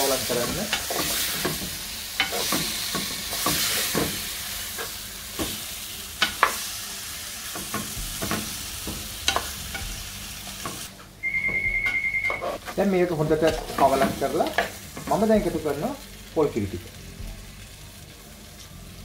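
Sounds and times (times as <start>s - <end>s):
food sizzling in a pot: 0.0s - 19.0s
spatula scraping pot: 12.2s - 14.0s.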